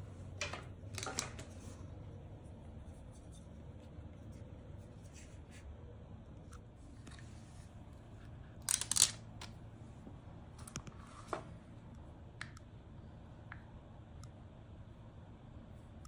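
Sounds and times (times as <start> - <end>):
small plastic clicks: 8.6 - 9.5.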